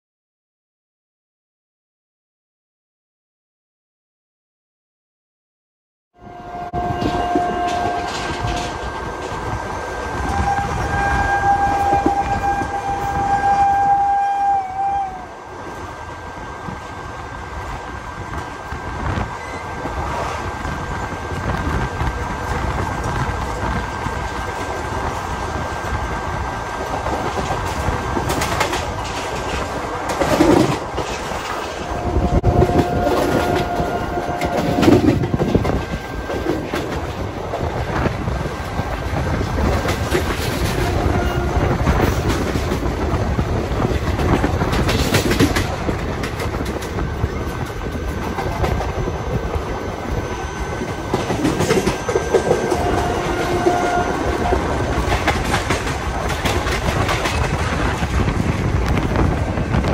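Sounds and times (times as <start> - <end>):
train wheels clattering over rail joints: 7.0 - 9.6, 26.8 - 31.9, 32.5 - 59.9.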